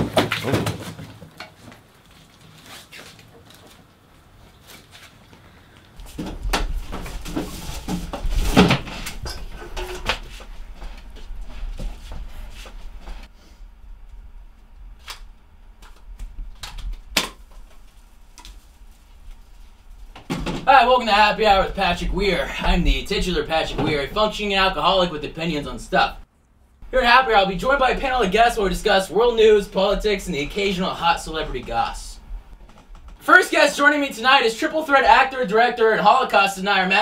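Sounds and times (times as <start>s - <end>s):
low rumble: 32.1s - 32.6s.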